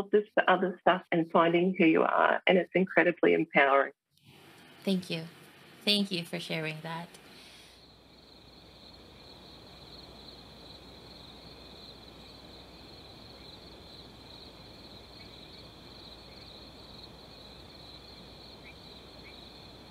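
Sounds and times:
insects trilling: 7.5s - 19.9s.

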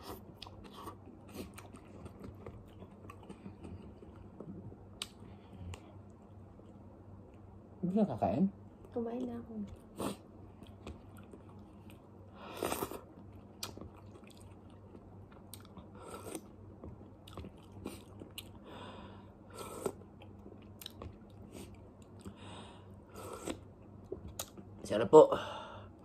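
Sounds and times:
man chewing and smacking: 0.0s - 7.5s, 10.6s - 18.6s, 19.7s - 22.3s, 23.3s - 24.8s.

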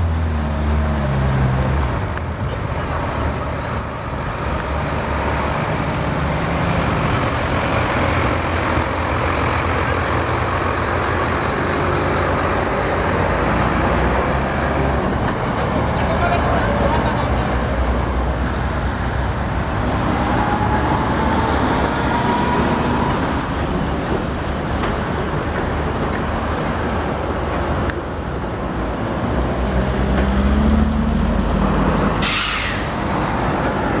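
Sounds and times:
other traffic: 0.0s - 34.0s
tyre and road noise: 0.0s - 34.0s
short hiss: 31.4s - 33.0s.

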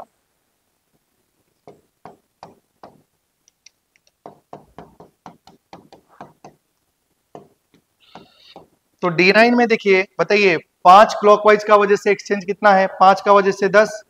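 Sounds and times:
taps and strokes writing on board: 1.6s - 3.1s, 4.0s - 6.6s, 7.3s - 8.8s.

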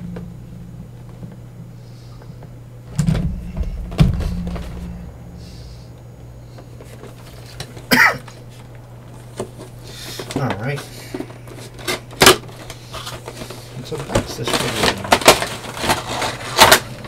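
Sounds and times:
steady low hum: 0.0s - 17.0s
packaging thumps: 6.8s - 17.0s.

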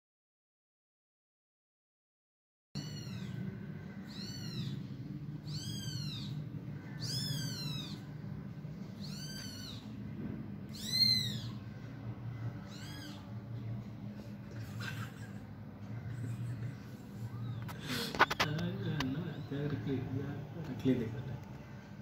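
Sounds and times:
kitten mewing: 2.8s - 8.2s, 9.0s - 10.0s, 10.7s - 11.6s, 12.6s - 13.4s
low hum: 2.8s - 22.0s.

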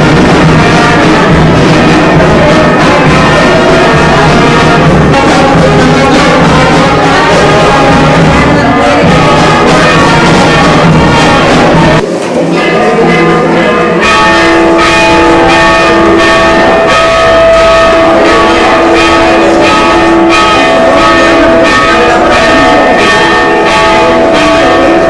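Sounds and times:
bells ringing loudly: 0.0s - 25.0s.

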